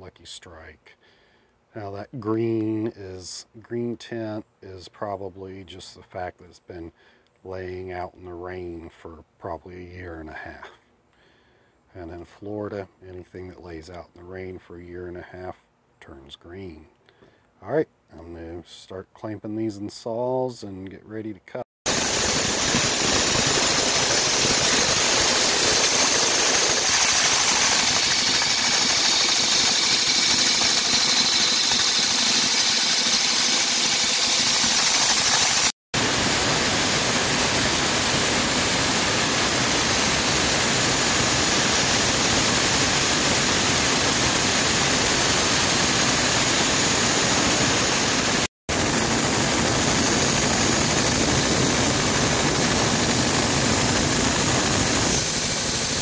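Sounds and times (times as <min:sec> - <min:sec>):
rock saw cutting hissing: 0:21.9 - 0:56.0.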